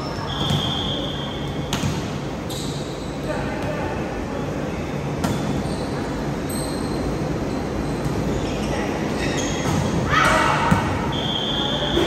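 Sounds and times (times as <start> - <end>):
echoing gym hall noise: 0.0 - 12.0
sneakers squeaking on hardwood: 5.2 - 10.9.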